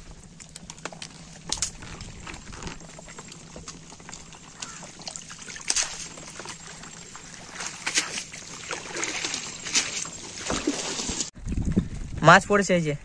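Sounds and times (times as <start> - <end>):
water splashes: 0.0 - 11.4
water streaming off a net: 4.6 - 6.7, 7.4 - 11.3.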